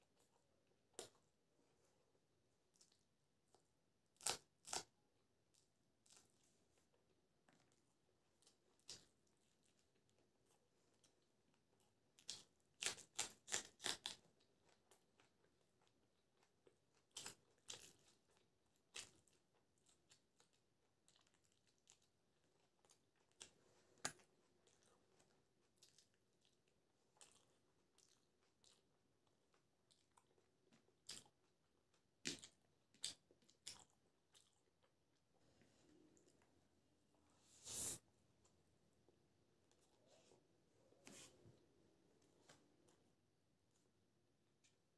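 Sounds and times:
person crunching and chewing food: 2.7 - 6.5, 7.5 - 35.0.

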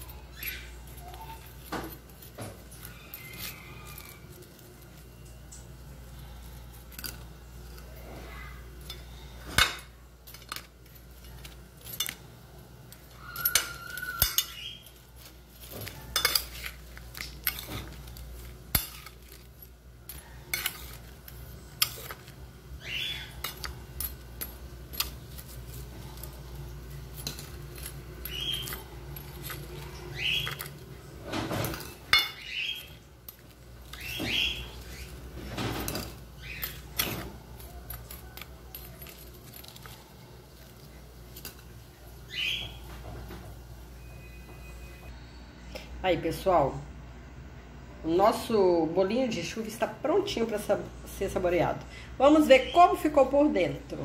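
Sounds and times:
low steady hum: 0.0 - 54.0
metal spoon clinking on dishes: 8.8 - 12.3, 12.9 - 40.8.

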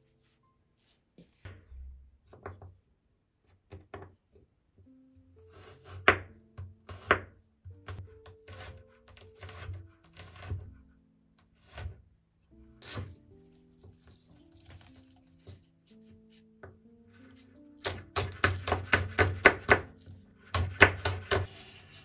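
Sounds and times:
soft background music: 0.0 - 22.0
knife cutting on a cutting board: 5.4 - 6.3, 6.9 - 10.7, 11.5 - 12.0, 12.8 - 13.1, 17.9 - 22.0
knife chopping quickly: 17.8 - 21.5.

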